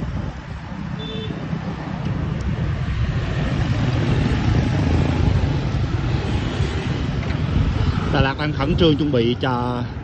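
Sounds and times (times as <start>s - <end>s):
cars and motorbikes passing: 0.0s - 10.0s.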